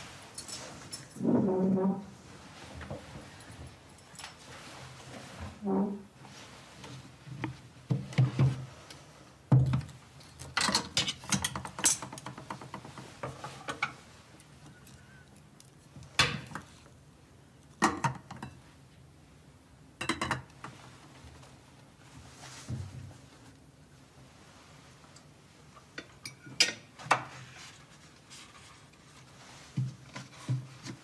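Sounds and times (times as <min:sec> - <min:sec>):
cutlery and dishes clinking: 0:10.6 - 0:12.4, 0:26.0 - 0:27.0.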